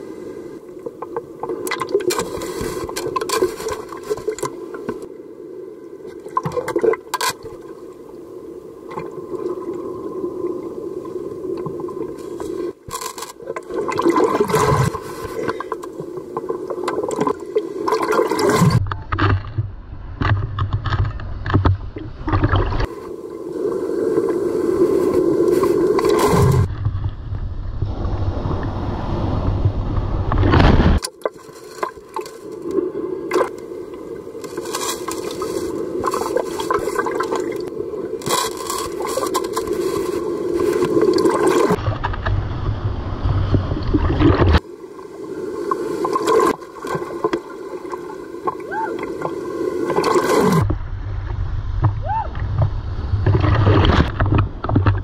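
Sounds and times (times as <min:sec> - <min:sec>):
surf sloshing and splashing: 0:00.0 - 0:55.0
waves breaking: 0:00.0 - 0:55.0
muffled underwater rumble: 0:18.5 - 0:31.0, 0:32.2 - 0:46.3, 0:46.9 - 0:55.0.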